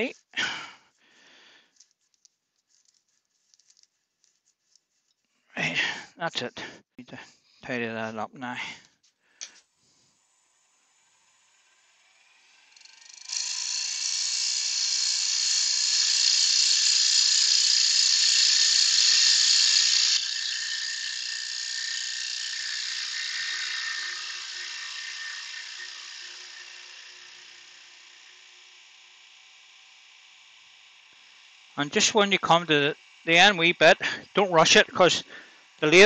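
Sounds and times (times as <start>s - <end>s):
lathe tool cutting wood hiss: 9.6s - 36.0s.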